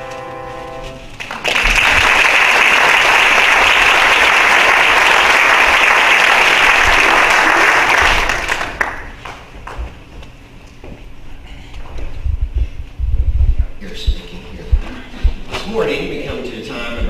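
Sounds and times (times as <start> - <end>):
congregation applauding: 0.9 - 9.5.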